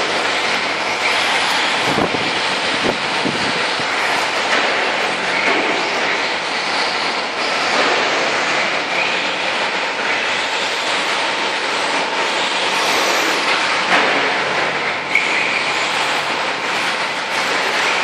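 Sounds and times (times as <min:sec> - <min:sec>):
rc truck drive and tyre noise: 0:00.0 - 0:14.4.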